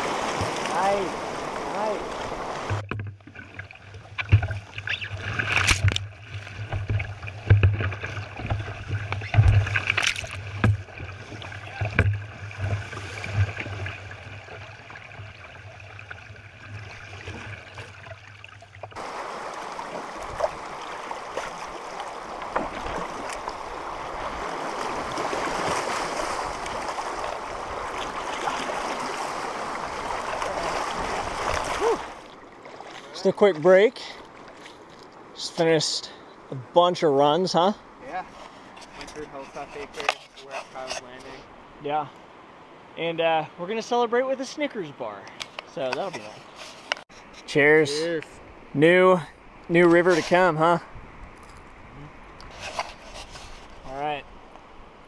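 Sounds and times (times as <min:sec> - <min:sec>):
rushing river water: 0:00.0 - 0:55.0
sharp knocks on canoe: 0:06.6 - 0:13.8.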